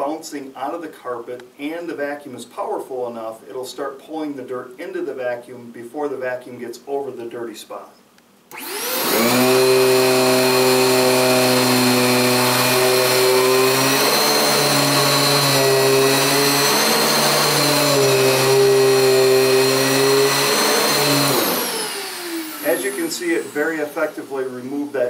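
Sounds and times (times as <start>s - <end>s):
vacuum cleaner running with whine: 8.5s - 24.9s.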